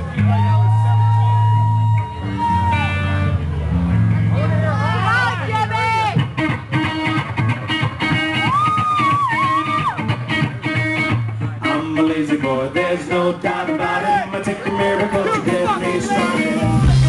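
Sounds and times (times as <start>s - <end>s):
bending electric guitar melody: 0.0s - 17.0s
live rock band playing: 0.0s - 17.0s.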